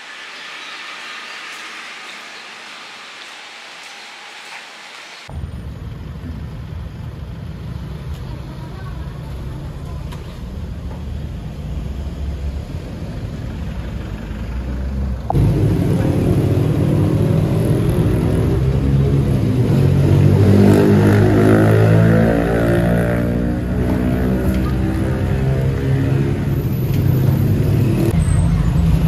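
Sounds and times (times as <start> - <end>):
street traffic rumble: 0.0 - 29.0
cars passing: 6.7 - 29.0.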